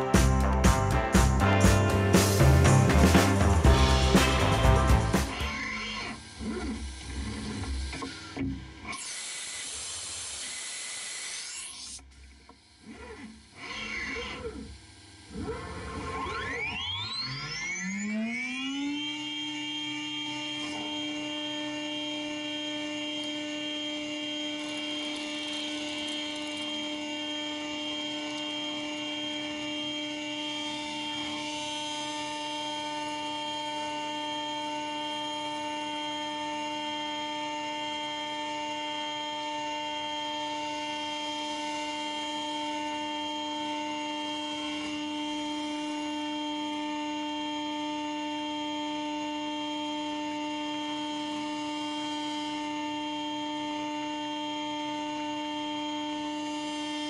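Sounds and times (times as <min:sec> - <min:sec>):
router spindle whine: 0:03.4 - 0:57.0
router bit cutting plastic hiss: 0:05.2 - 0:16.3, 0:19.2 - 0:57.0.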